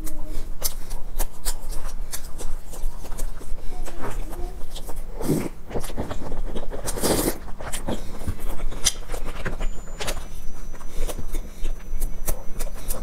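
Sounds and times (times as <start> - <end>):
chewing crusty bread: 0.0 - 13.0
slurping sip: 6.8 - 7.4.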